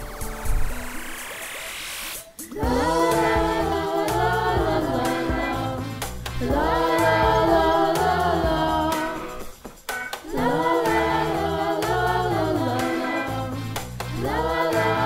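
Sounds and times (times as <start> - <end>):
group of voices singing: 2.4 - 9.6, 10.2 - 15.0
backing track with bass line: 2.6 - 15.0.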